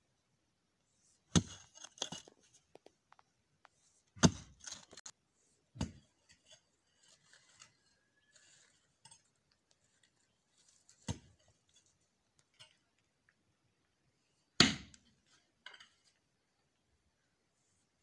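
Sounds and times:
heavy thuds of digging: 1.3s - 1.7s, 4.2s - 4.6s, 5.8s - 6.1s
soil crumbling and scraping: 1.3s - 3.2s, 4.1s - 5.1s, 5.8s - 13.1s.

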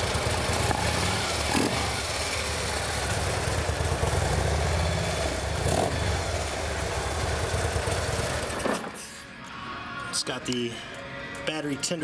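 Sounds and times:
motorcycle engine idling: 0.0s - 8.6s.

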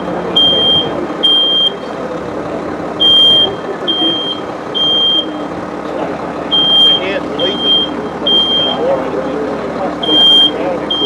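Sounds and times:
smoke alarm beeping: 6.5s - 8.8s.

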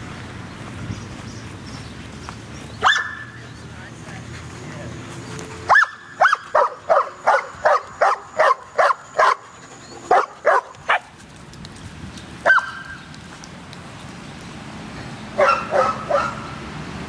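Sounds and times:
dog barking: 2.8s - 3.4s, 5.7s - 9.5s, 10.1s - 11.1s, 12.5s - 12.9s, 15.4s - 16.5s.

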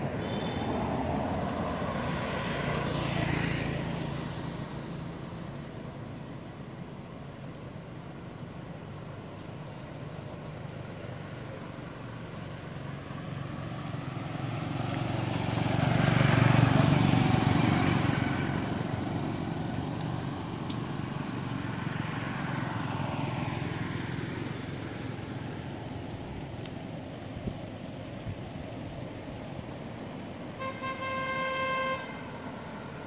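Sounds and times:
vehicle driving past: 0.0s - 6.4s, 10.6s - 26.5s.

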